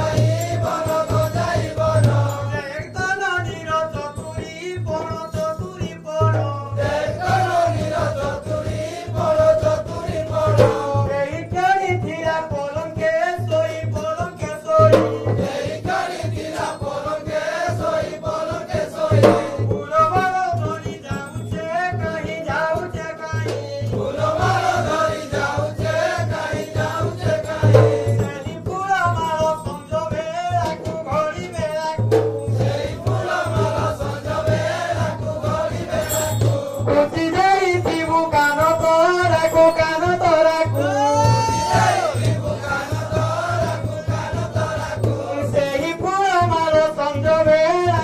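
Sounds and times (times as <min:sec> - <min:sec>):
fast drum strokes: 0:00.0 - 0:48.0
voices singing: 0:00.0 - 0:48.0.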